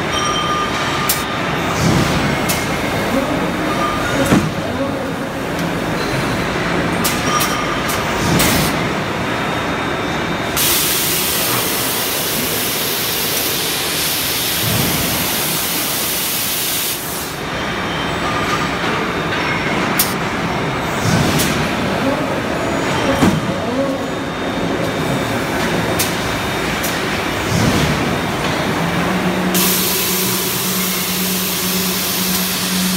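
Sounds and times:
machinery running: 0.0 - 32.9
loud hiss: 29.6 - 32.9.

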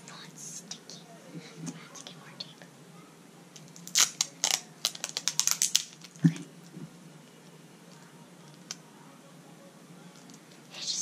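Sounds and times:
sticky tape ripping: 3.6 - 6.3.

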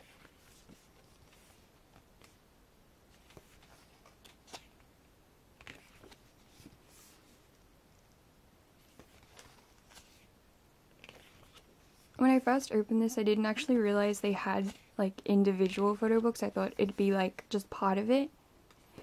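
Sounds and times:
book pages turning: 0.0 - 2.4, 3.1 - 4.9, 5.6 - 7.5, 8.8 - 10.3, 10.9 - 12.2.

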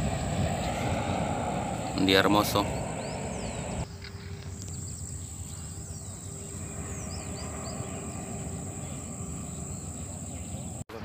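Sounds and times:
low rumble: 0.0 - 3.9
insects buzzing: 0.0 - 10.8
bird chirps: 2.6 - 10.8.

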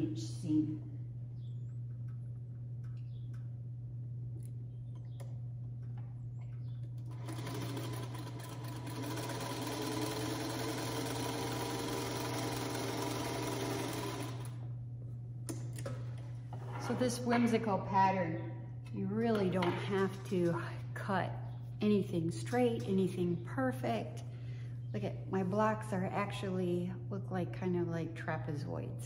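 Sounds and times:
sewing machine running: 7.0 - 14.7.

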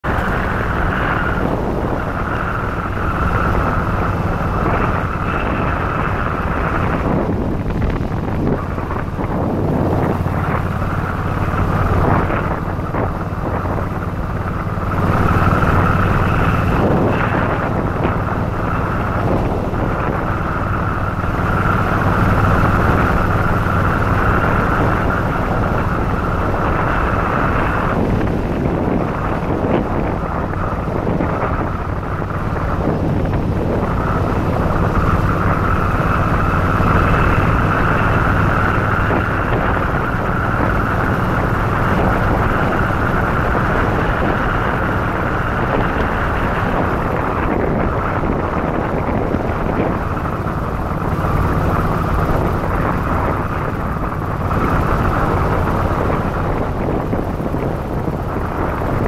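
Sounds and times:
motorcycle engine running: 0.0 - 59.0
wind buffeting microphone: 0.0 - 59.0.

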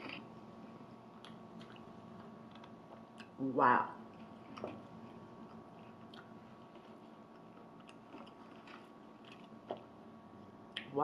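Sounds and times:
faint steady hum: 0.0 - 11.0
person chewing: 1.2 - 3.4, 4.1 - 9.9.

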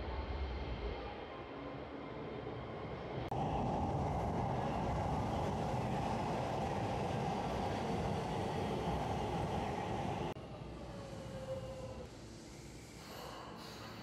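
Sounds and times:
train wheels rumbling on rails: 3.3 - 10.4.

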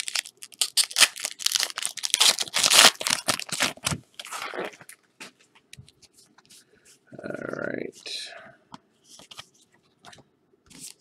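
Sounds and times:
card wrappers crinkling: 0.0 - 4.9.

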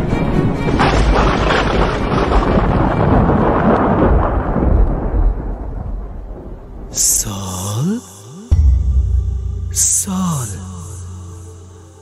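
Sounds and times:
rolling thunder rumble: 0.3 - 7.3.

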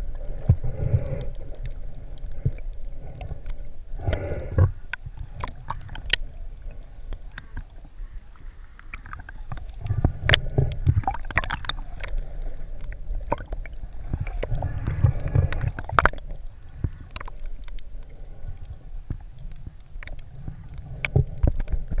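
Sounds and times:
muffled rumble of moving water: 0.0 - 22.0
underwater clicks and crackles: 0.0 - 22.0
gurgling water surge: 10.0 - 12.2.

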